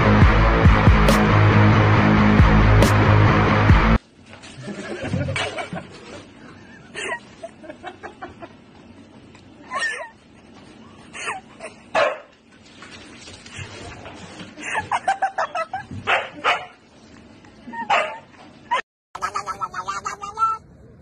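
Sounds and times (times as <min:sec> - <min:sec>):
dog barking and yipping: 0:12.0 - 0:12.3, 0:16.1 - 0:16.8, 0:17.8 - 0:18.8.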